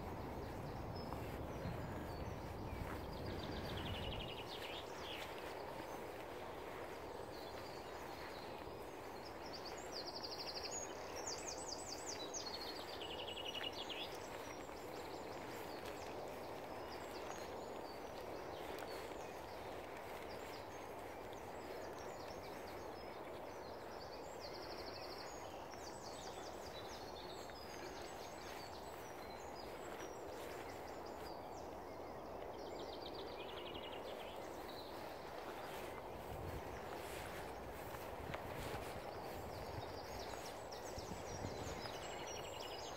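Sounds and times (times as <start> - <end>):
songbirds trilling: 0.0 - 42.9.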